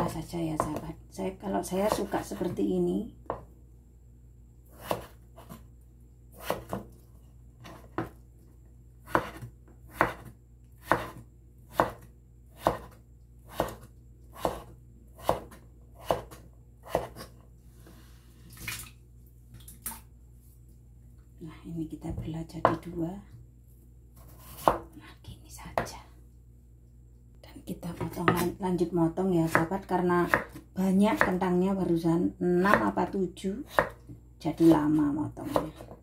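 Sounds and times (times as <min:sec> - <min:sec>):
knife chopping on wooden board: 0:04.7 - 0:05.6, 0:06.4 - 0:06.9, 0:07.6 - 0:08.2, 0:09.0 - 0:17.4, 0:24.2 - 0:24.9, 0:28.0 - 0:28.6, 0:29.5 - 0:30.6, 0:33.7 - 0:34.8, 0:35.5 - 0:36.0.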